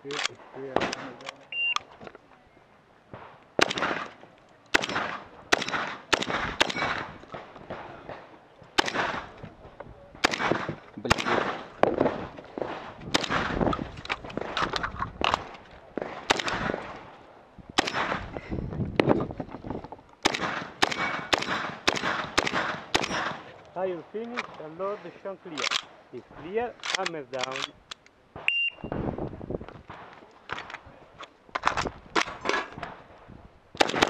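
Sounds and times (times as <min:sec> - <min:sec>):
shotgun blasts: 0:00.7 - 0:01.2, 0:03.2 - 0:08.2, 0:08.8 - 0:09.4, 0:10.2 - 0:17.1, 0:17.7 - 0:18.4, 0:20.2 - 0:23.5, 0:33.8 - 0:34.0.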